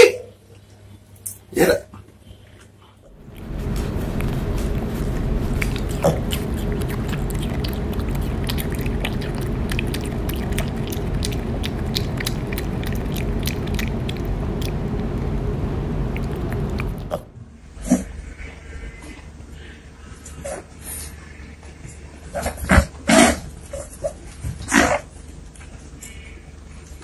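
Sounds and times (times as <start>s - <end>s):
piglet chewing and smacking: 3.1s - 17.3s
low background rumble: 3.1s - 27.0s.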